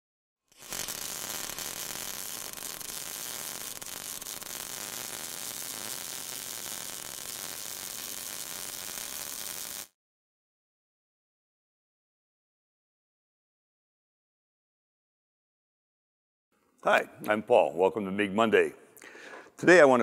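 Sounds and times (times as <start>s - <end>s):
welding arc hissing and crackling: 0.5s - 10.0s.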